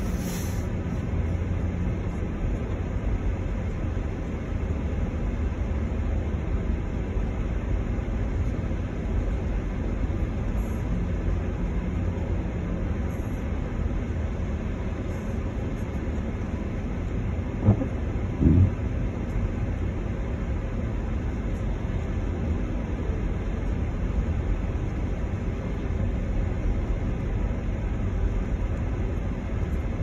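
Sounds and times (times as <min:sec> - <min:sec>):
brief hiss: 0:00.0 - 0:00.7
car cabin engine and tyre rumble: 0:00.0 - 0:30.0.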